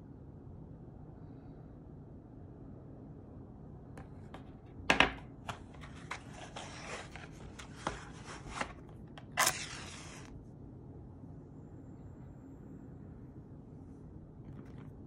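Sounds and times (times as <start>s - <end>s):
short scrape: 9.4s - 10.3s.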